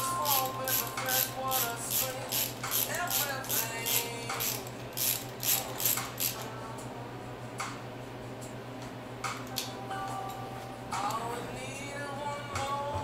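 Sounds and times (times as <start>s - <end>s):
ratchet wrench clicking: 0.2s - 6.4s.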